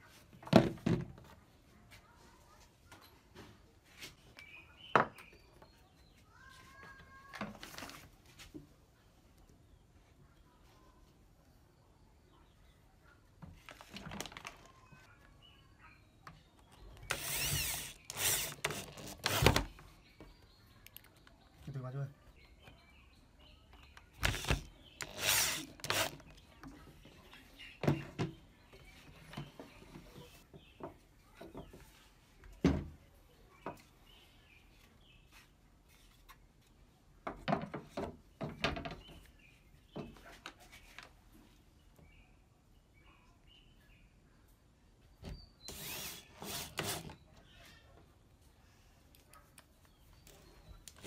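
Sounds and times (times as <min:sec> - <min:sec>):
electric drill running: 0:17.1 - 0:19.6, 0:24.2 - 0:26.2.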